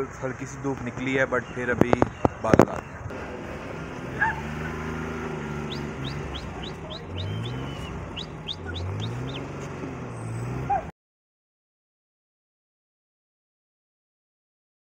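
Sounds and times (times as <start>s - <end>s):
low rising calls: 1.3s - 10.9s.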